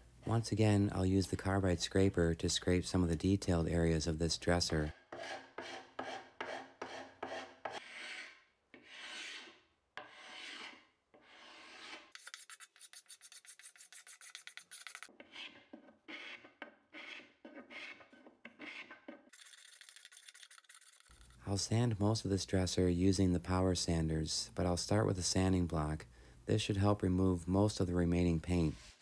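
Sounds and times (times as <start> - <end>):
paint scraper rasping on wood: 5.1 - 19.1.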